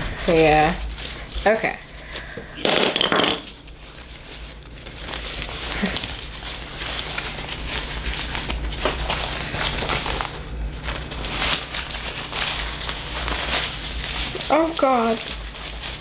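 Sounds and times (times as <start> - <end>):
crumpled shell crinkling: 3.4 - 16.0.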